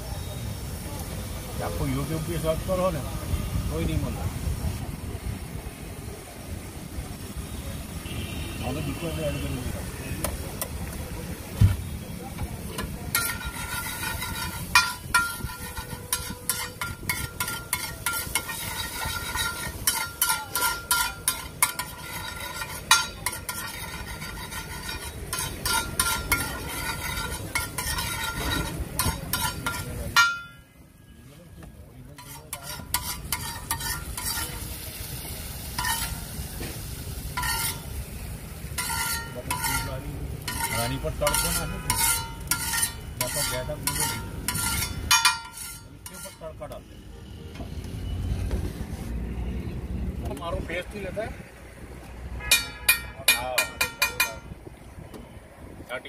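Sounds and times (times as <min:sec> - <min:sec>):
frying sizzle: 0:00.0 - 0:30.3, 0:32.1 - 0:46.6
metal spatula scraping griddle: 0:12.6 - 0:30.6, 0:32.1 - 0:46.7.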